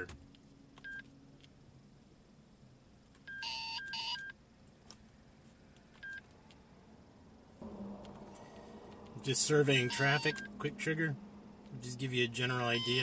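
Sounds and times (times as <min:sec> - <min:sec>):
two-part electronic tone: 0:09.7 - 0:10.6, 0:12.6 - 0:13.0
radar short beeps: 0:09.9 - 0:10.5, 0:12.7 - 0:13.0.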